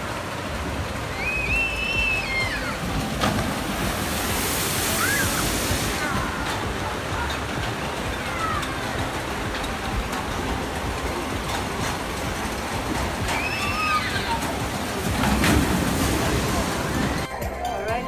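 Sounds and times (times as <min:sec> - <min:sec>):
water running down flume: 0:00.0 - 0:17.3
water spray splashing: 0:00.0 - 0:17.3
people screaming: 0:01.0 - 0:03.4, 0:04.0 - 0:09.6, 0:13.0 - 0:17.6.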